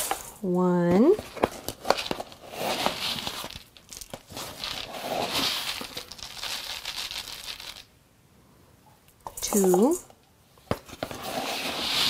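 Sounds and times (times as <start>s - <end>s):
dry oats rustling in scoop: 2.0s - 7.8s, 11.2s - 12.0s.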